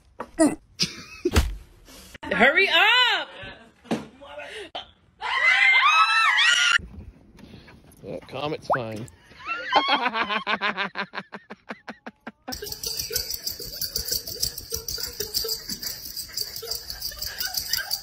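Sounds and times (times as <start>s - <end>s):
person laughing: 9.8s - 18.0s.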